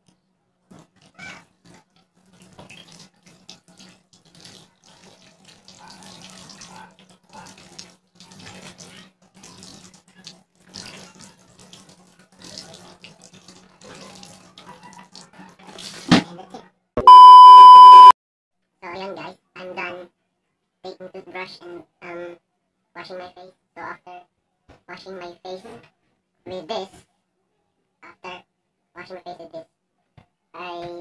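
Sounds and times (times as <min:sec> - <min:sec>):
water running from tap: 0:01.6 - 0:16.1.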